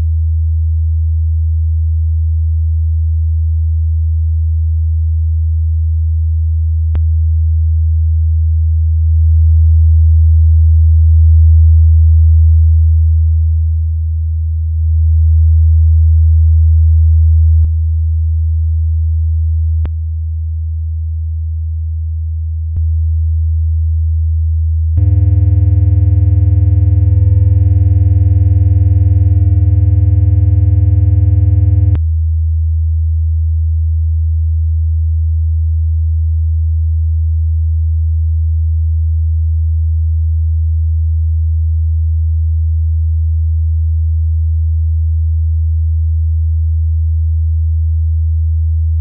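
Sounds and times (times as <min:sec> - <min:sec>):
high synthesized chord: 0:25.0 - 0:31.9
deep synth drone: 0:25.0 - 0:32.0.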